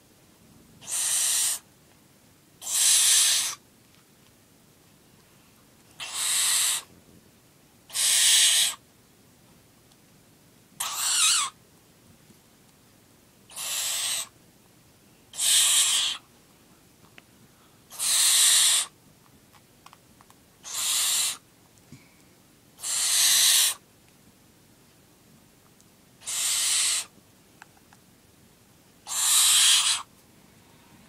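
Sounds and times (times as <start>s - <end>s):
owl chick hissing calls: 0.8s - 1.7s, 2.6s - 3.6s, 6.0s - 6.9s, 7.9s - 8.8s, 10.8s - 11.6s, 13.5s - 14.4s, 15.3s - 16.3s, 17.9s - 19.0s, 20.6s - 21.5s, 22.8s - 23.8s, 26.2s - 27.2s, 29.0s - 30.1s.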